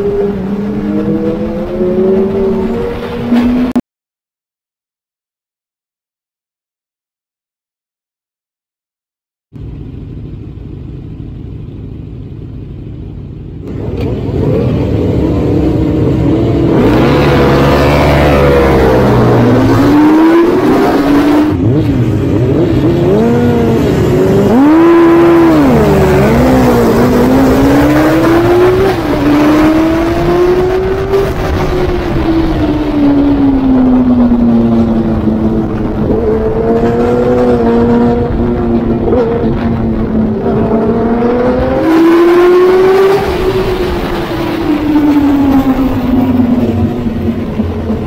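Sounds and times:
motorcycle engines revving and accelerating: 0:00.0 - 0:03.8, 0:13.6 - 0:48.0.

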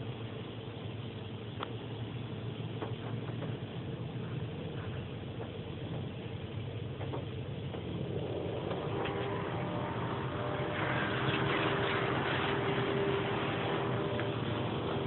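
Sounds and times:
car wash machinery hum: 0:00.0 - 0:15.0
water and soap spraying: 0:03.1 - 0:15.0
motor whine: 0:06.6 - 0:15.0.

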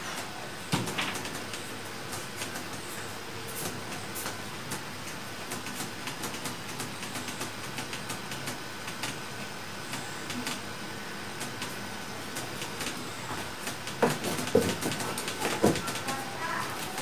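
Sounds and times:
small irregular clicks: 0:03.6 - 0:09.2.

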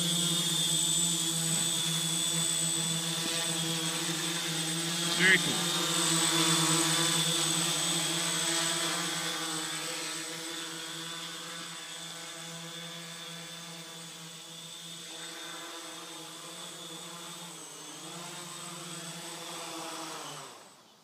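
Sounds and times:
drone propellers humming: 0:00.0 - 0:09.9.

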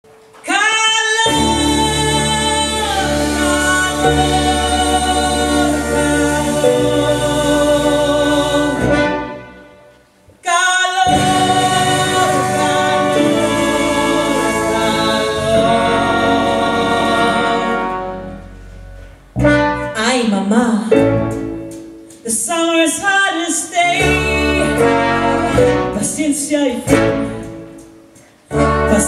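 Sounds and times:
choir singing held chords: 0:01.3 - 0:09.8, 0:11.0 - 0:18.7.

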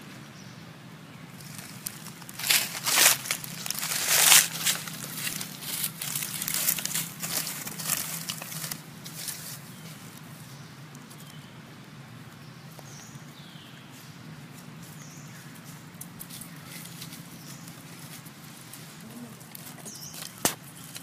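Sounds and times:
dry leaves crackling and rustling: 0:01.3 - 0:10.5, 0:13.9 - 0:21.0.

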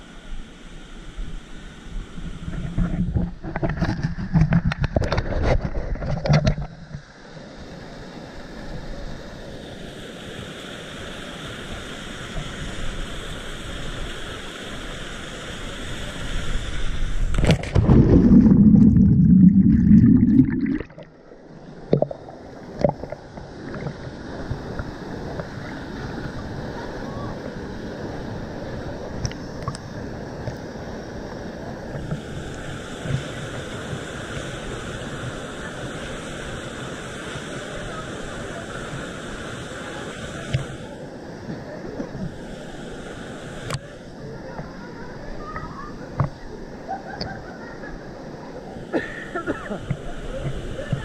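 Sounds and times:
water splashing and rushing: 0:16.2 - 0:40.8
sharp splash into water: 0:17.3 - 0:19.8
low underwater churning: 0:17.3 - 0:26.7.

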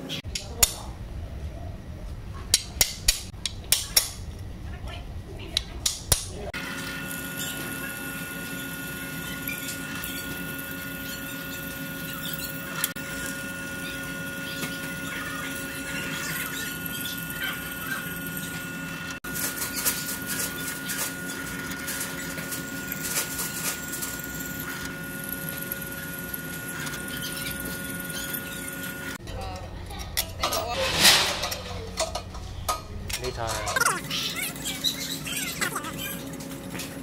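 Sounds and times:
drill press motor hum: 0:05.8 - 0:29.2
drill bit cutting metal: 0:06.6 - 0:29.2.

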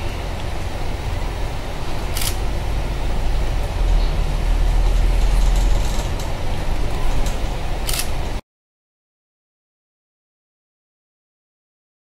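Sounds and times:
bus engine and road rumble: 0:00.0 - 0:08.4.

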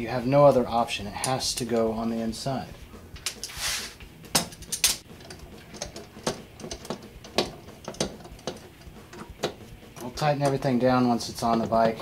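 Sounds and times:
metal hardware clinking: 0:03.1 - 0:03.6, 0:04.2 - 0:12.0.

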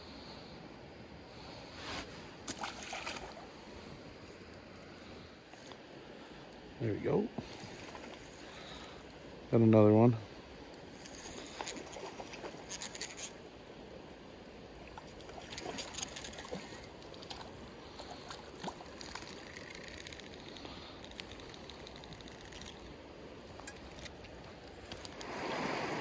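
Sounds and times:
creek water trickling: 0:02.4 - 0:06.7, 0:07.3 - 0:09.6, 0:10.3 - 0:26.0
small water splashes: 0:02.5 - 0:03.6, 0:11.0 - 0:13.4, 0:14.8 - 0:22.9, 0:23.5 - 0:26.0.

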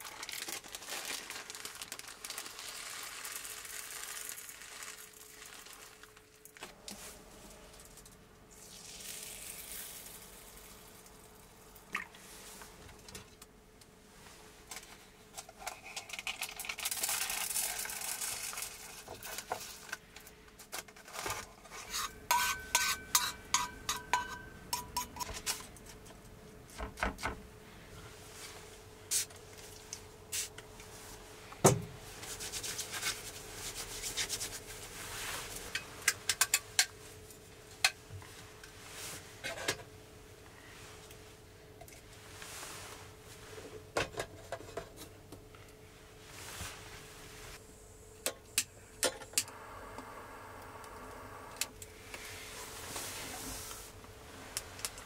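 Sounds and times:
utensil clinking metal cup: 0:22.0 - 0:25.2.

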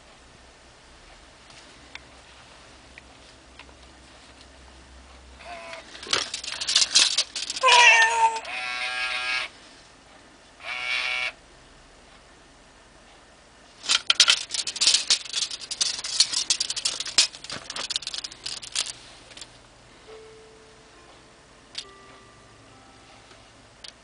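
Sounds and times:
toy cat meowing: 0:05.4 - 0:05.9, 0:07.6 - 0:09.5, 0:10.6 - 0:11.4
toy clicking and rattling: 0:05.4 - 0:09.4, 0:13.8 - 0:19.5.

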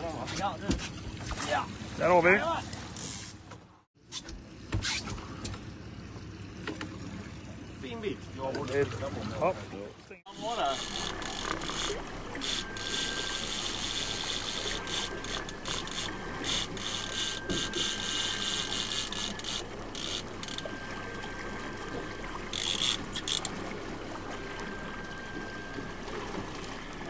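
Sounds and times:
fishing reel ratcheting: 0:10.3 - 0:20.8, 0:22.5 - 0:23.6
boat engine humming: 0:10.3 - 0:27.0.

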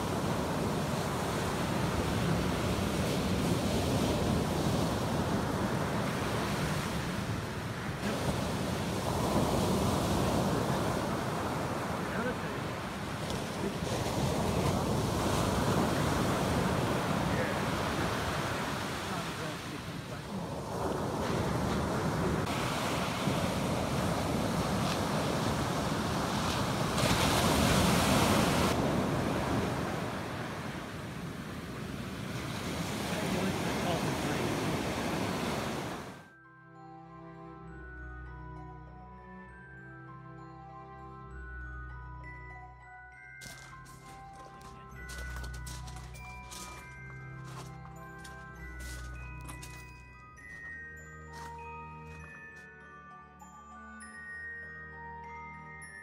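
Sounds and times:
surf breaking on beach: 0:00.0 - 0:36.2.

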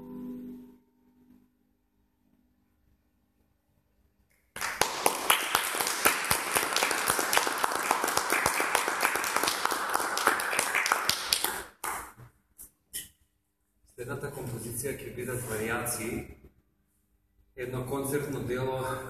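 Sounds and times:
audience applauding: 0:04.5 - 0:12.2.

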